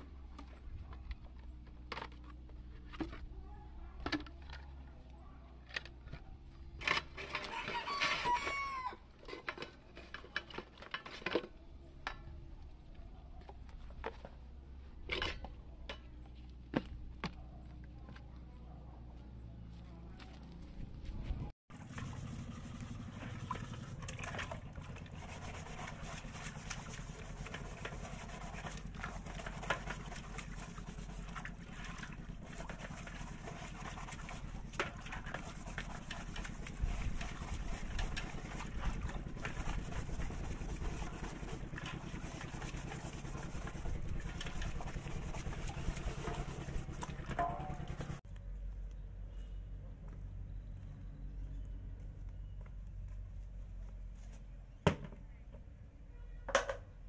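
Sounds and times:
water splashing and sloshing: 0:21.7 - 0:48.2.

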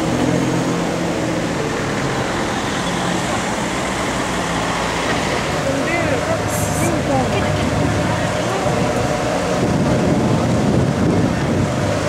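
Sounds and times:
street traffic noise: 0:00.0 - 0:12.0
car engine running at low revs: 0:05.0 - 0:12.0.

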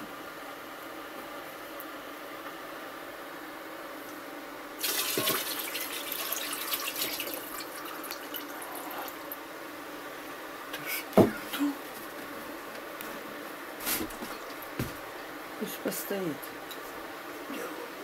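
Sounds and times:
liquid pouring and splashing: 0:04.8 - 0:09.3.

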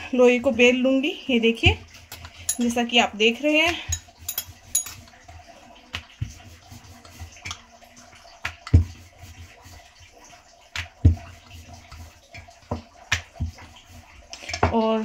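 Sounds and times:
rolling pin rolling dough: 0:00.1 - 0:15.0.

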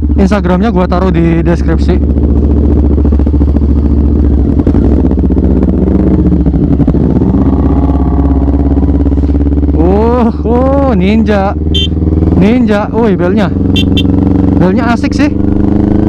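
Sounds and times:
motorcycle engine pulling away: 0:00.0 - 0:16.0.

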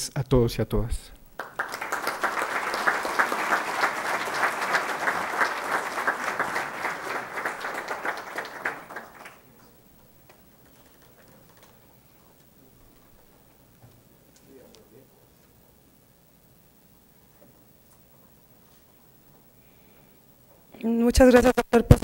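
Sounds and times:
audience applauding: 0:01.4 - 0:11.7.

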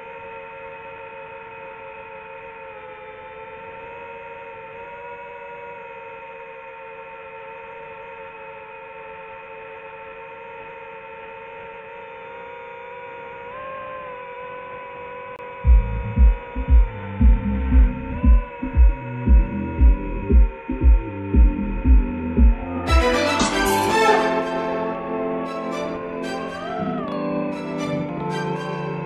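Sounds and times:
drone motors humming: 0:15.2 - 0:29.0.

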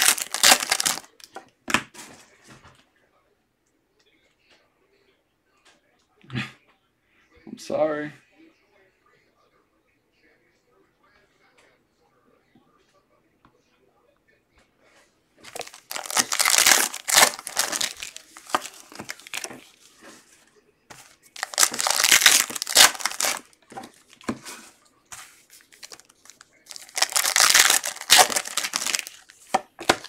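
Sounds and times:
foil wrapper tearing and crinkling: 0:00.0 - 0:01.3, 0:15.5 - 0:19.7, 0:21.3 - 0:24.3, 0:25.5 - 0:30.0.

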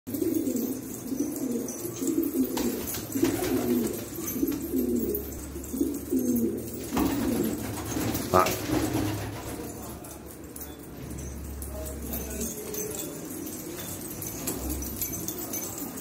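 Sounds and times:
pigeons cooing: 0:00.1 - 0:09.8.

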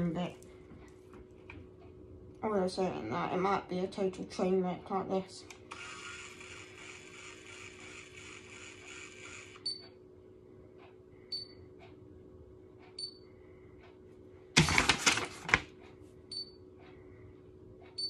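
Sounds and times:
hair curler motor whirring: 0:05.5 - 0:09.6
paper leaflet rustling: 0:14.6 - 0:15.7.

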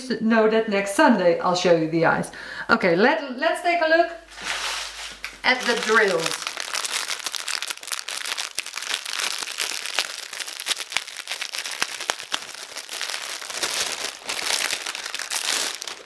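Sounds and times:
plastic bag crinkling: 0:04.4 - 0:16.0.

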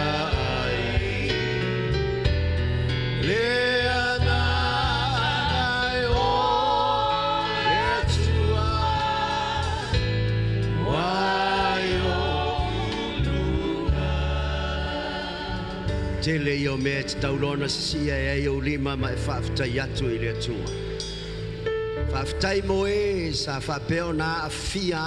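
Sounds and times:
singers singing together: 0:00.0 - 0:02.1, 0:03.2 - 0:17.7.

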